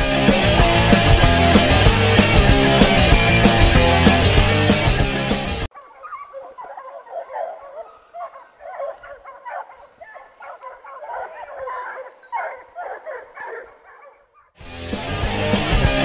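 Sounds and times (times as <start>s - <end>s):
hounds yelping and baying: 5.6s - 14.6s.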